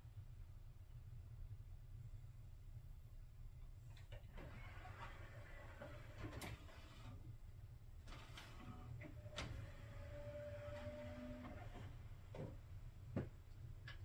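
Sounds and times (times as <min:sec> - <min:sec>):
disc tray motor whine: 0:08.3 - 0:12.2.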